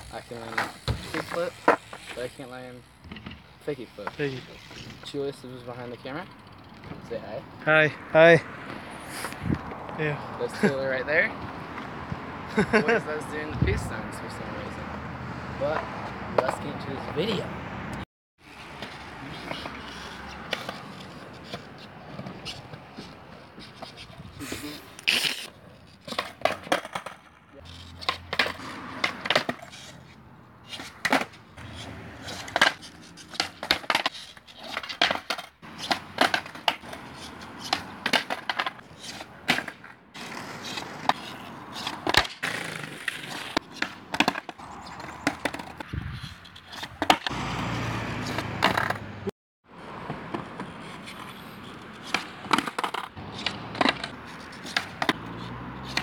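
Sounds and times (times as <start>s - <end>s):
skateboard wheels rolling on concrete: 0.0s - 56.0s
skateboard pops and clacks: 25.0s - 27.3s, 28.0s - 29.7s, 30.7s - 46.0s, 48.3s - 49.1s, 52.0s - 55.3s.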